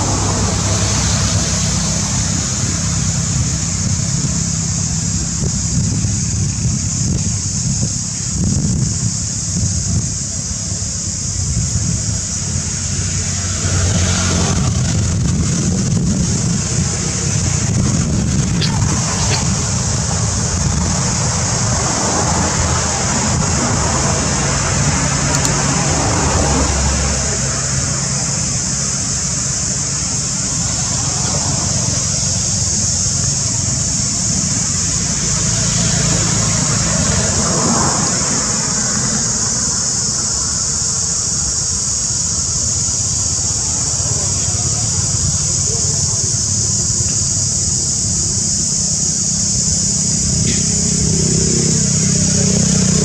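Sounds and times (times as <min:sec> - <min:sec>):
high-pitched hiss: 0:00.0 - 0:53.0
low rumble: 0:14.4 - 0:21.9.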